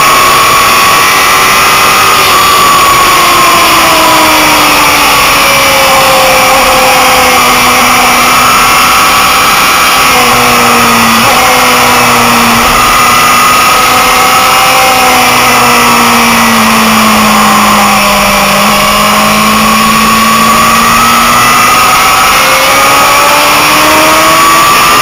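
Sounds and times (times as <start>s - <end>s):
motorcycle engine at high revs: 0.0s - 25.0s.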